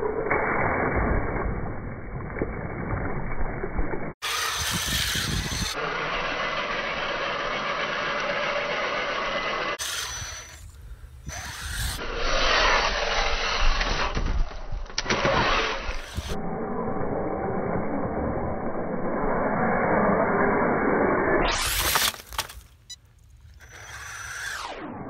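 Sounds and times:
toy truck electric motor: 4.2 - 14.2, 15.0 - 16.4, 21.5 - 22.5, 23.6 - 24.9.

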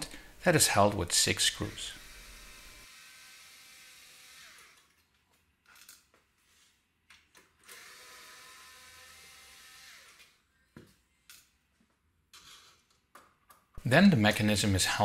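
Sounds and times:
cordless screwdriver whining: 1.8 - 4.9, 7.6 - 10.4.

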